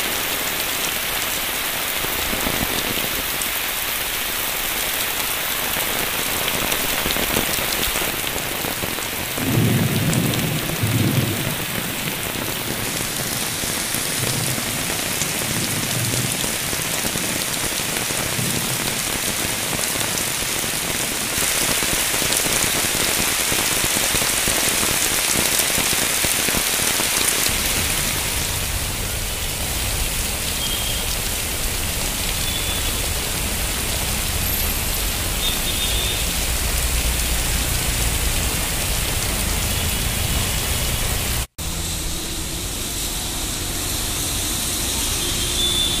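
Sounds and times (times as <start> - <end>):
heavy rain on a street: 0.0 - 46.0
traffic driving through water: 27.5 - 46.0.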